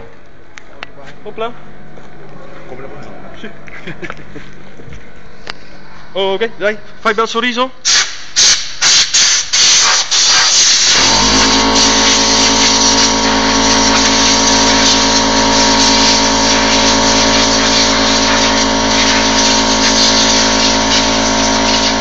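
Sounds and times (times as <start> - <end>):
compressed air hissing: 7.8 - 22.0
air compressor motor humming: 8.0 - 22.0.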